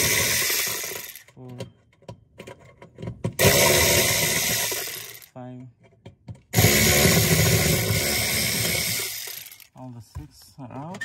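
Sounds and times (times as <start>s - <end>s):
cordless screwdriver running: 0.0s - 1.2s, 3.4s - 5.3s, 6.6s - 9.7s.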